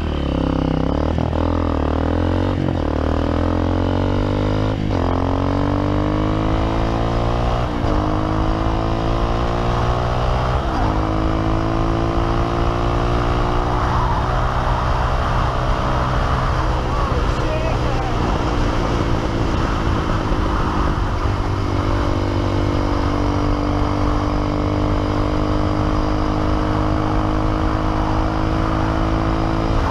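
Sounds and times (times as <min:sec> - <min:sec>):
dirt bike engine at full throttle: 0:00.0 - 0:29.9.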